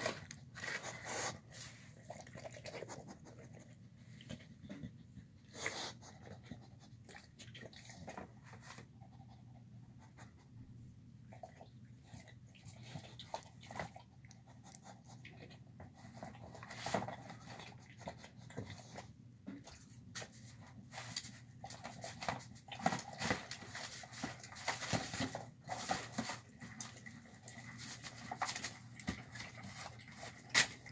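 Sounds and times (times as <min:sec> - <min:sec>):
dog licking and chewing food: 0:00.0 - 0:09.6, 0:11.2 - 0:20.1, 0:25.2 - 0:30.9.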